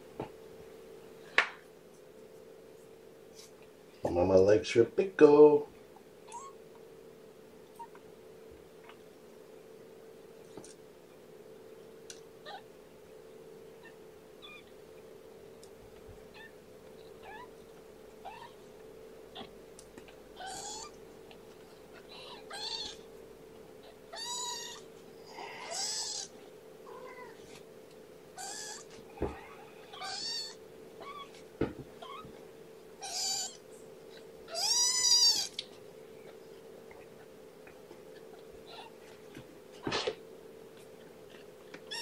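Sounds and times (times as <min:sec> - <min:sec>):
kittens mewing: 0:12.4 - 0:12.7, 0:17.2 - 0:18.6, 0:20.4 - 0:21.0, 0:21.9 - 0:23.1, 0:23.8 - 0:27.6, 0:28.4 - 0:31.4, 0:33.0 - 0:33.6, 0:34.5 - 0:35.7, 0:38.1 - 0:39.1, 0:41.3 - 0:42.0.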